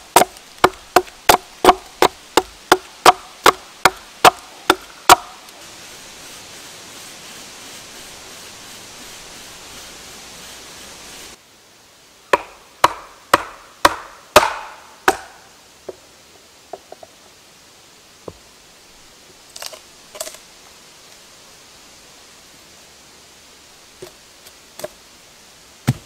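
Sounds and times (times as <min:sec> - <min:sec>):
steady hiss: 0:00.0 - 0:26.0
mallet knocking hatchet into log: 0:12.4 - 0:15.3.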